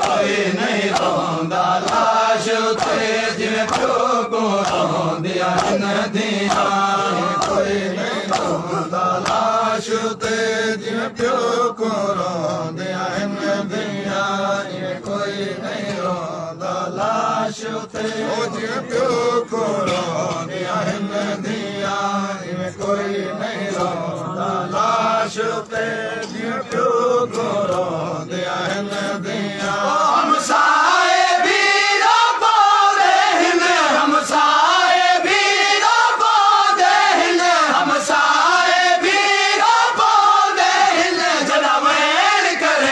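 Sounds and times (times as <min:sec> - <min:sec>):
chest-beating slaps: 0:00.0 - 0:09.6
men chanting in unison: 0:00.0 - 0:42.9.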